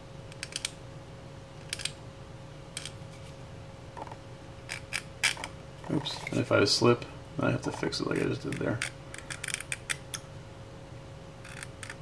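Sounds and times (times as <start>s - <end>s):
blade scratching resin: 11.4s - 12.0s.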